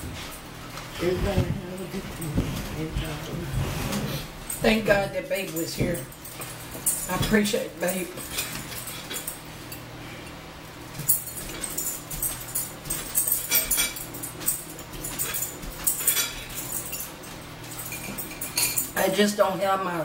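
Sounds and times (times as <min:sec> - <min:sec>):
spoons clinking against bowls: 0:11.0 - 0:19.0.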